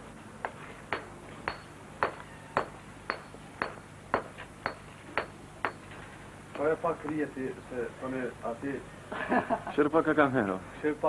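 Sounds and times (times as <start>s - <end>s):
hammer striking stone: 0.4s - 6.0s.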